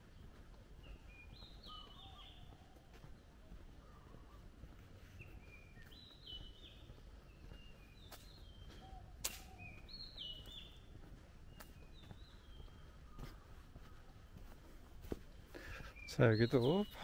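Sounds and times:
sharp click: 9.2 - 9.7.

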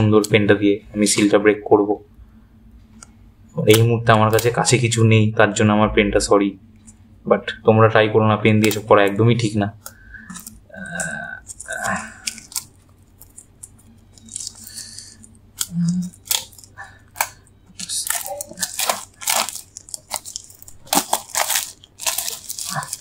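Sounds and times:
plastic wrap crinkling: 8.5 - 9.2, 9.8 - 23.0.

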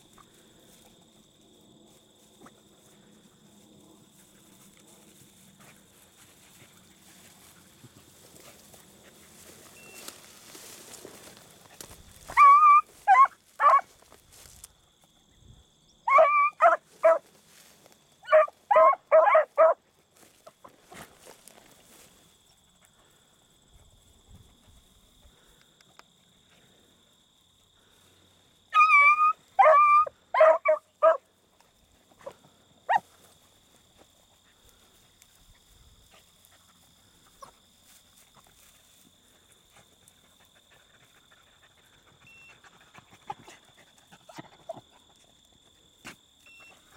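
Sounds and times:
faint steady high tone: 9.7 - 10.2, 46.4 - 46.9
dogs baying: 12.2 - 13.9, 18.3 - 19.8, 28.8 - 31.2.

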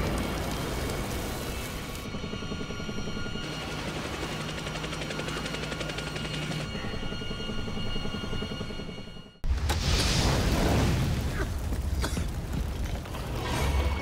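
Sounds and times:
helicopter rotor drone: 0.0 - 9.4.

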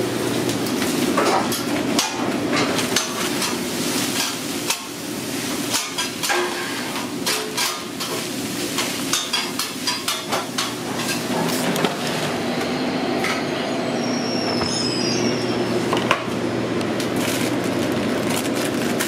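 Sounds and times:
griddle sizzling: 0.0 - 19.0
foil and paper crinkling: 17.0 - 19.0.

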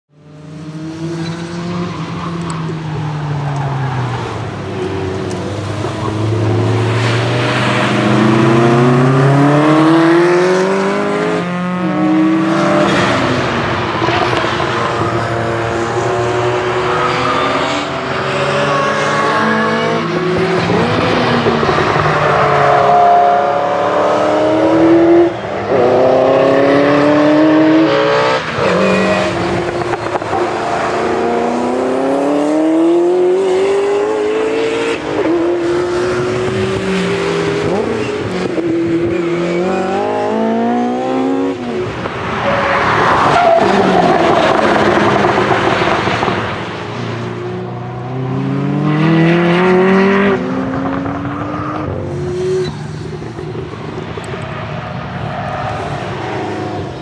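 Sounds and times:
race car engine accelerating: 4.3 - 41.8, 47.6 - 54.4.

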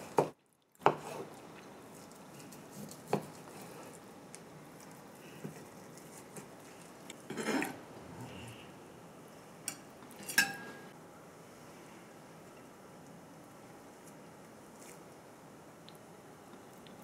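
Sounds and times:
knife clinking on ceramic plate: 10.2 - 10.8.

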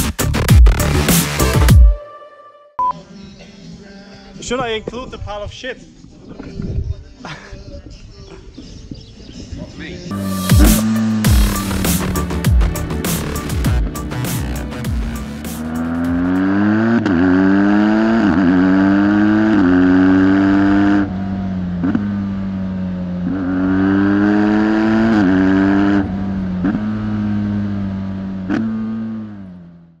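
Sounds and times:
motorcycle engine accelerating: 10.1 - 30.0.

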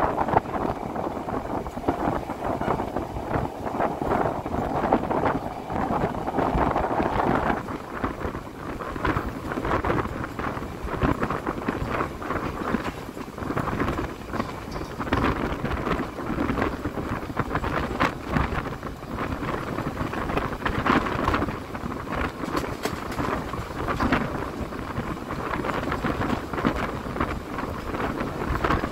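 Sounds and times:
train rumbling on rails: 0.0 - 28.9
wind buffeting microphone: 0.0 - 28.9.

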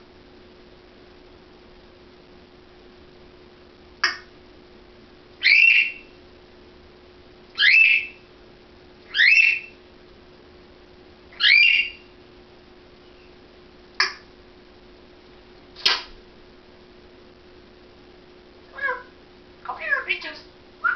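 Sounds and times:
sharp click: 4.0 - 4.3, 14.0 - 14.3, 15.8 - 16.2
parrot whistling: 5.4 - 6.1, 7.6 - 8.2, 9.1 - 9.7, 11.4 - 12.0.

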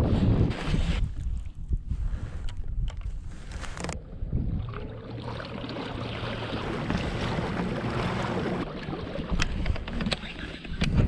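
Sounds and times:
wind on microphone: 0.0 - 5.0, 5.9 - 11.0
water rushing along hull: 3.5 - 11.0.

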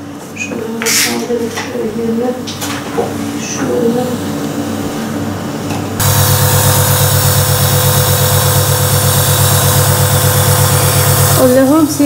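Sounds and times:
nebulizer compressor humming: 6.0 - 12.0.

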